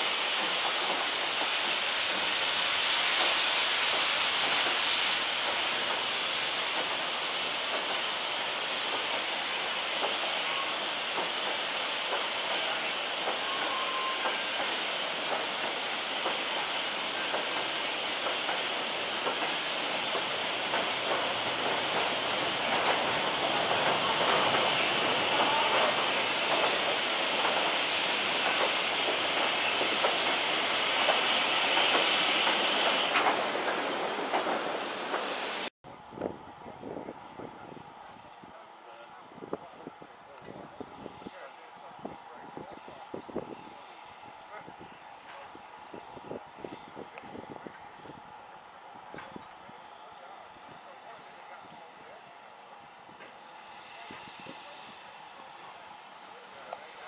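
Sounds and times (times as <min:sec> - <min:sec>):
train wheels clicking over rail joints: 0:00.0 - 0:35.4
steam hissing: 0:00.0 - 0:40.0, 0:40.6 - 0:57.0.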